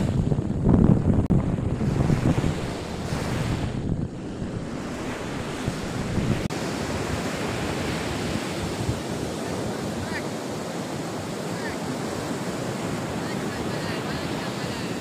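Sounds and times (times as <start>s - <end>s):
ocean surf breaking on beach: 0.0s - 15.0s
wind buffeting microphone: 0.0s - 15.0s.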